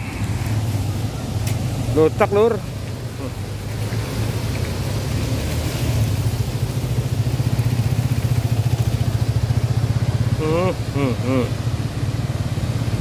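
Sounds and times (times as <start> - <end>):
floodwater rushing: 0.0 - 13.0
motorcycle engine idling: 6.7 - 10.6.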